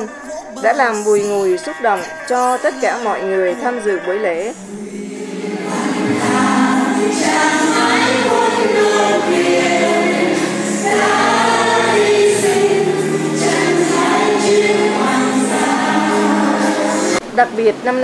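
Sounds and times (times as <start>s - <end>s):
choir singing slow song: 4.5s - 17.3s.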